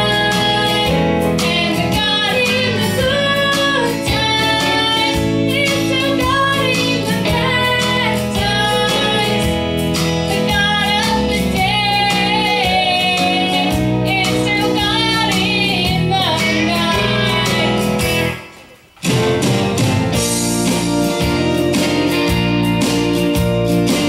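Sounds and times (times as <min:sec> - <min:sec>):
woman singing: 0:00.0 - 0:18.0
guitar strumming: 0:00.0 - 0:24.0.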